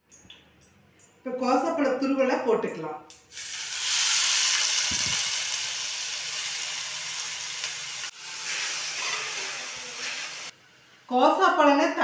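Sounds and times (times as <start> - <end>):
food sizzling in hot pan: 3.3 - 10.6.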